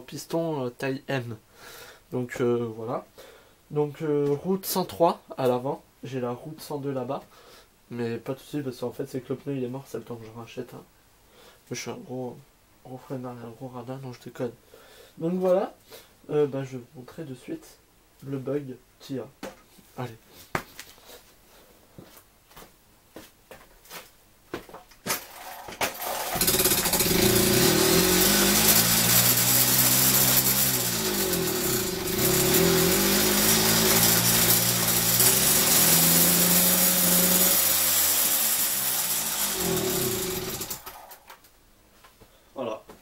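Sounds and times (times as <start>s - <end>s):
moped engine revving: 25.4s - 41.3s.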